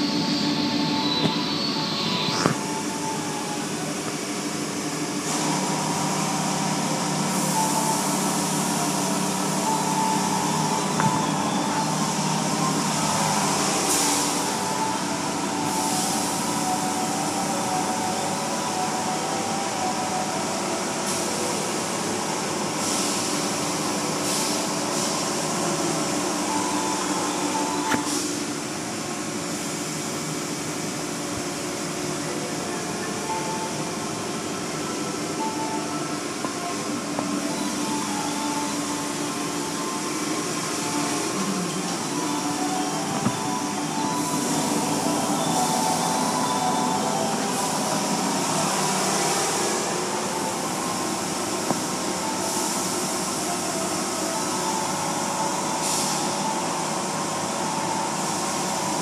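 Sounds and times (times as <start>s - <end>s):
car wash motors and brushes humming: 0.0s - 59.0s.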